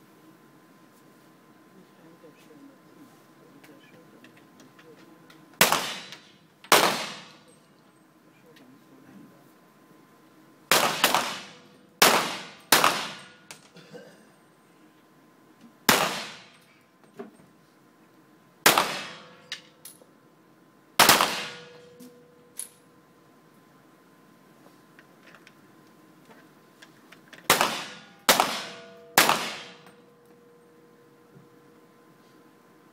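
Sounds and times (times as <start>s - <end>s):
pistol shots echoing: 5.6s - 7.4s, 10.7s - 13.4s, 15.9s - 16.5s, 18.7s - 19.4s, 21.0s - 21.8s, 27.5s - 30.0s.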